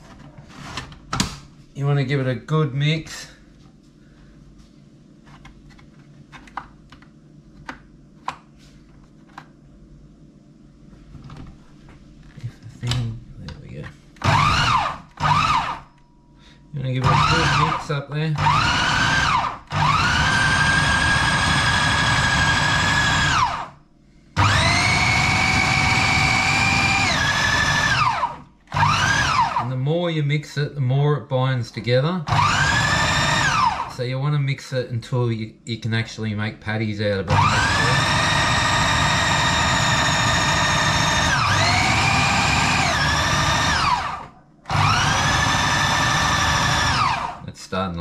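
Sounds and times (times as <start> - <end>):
food processor motor whining: 14.2 - 15.9, 17.0 - 23.8, 24.4 - 29.7, 32.3 - 33.9, 37.3 - 47.5.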